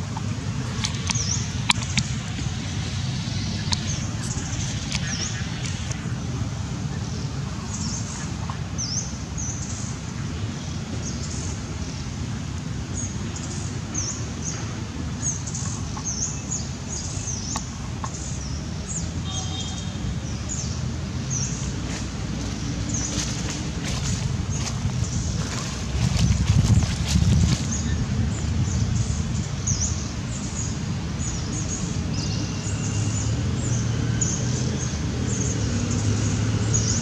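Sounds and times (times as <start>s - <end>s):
low background rumble: 0.0s - 8.8s
small birds chirping: 0.1s - 10.0s, 15.2s - 37.0s.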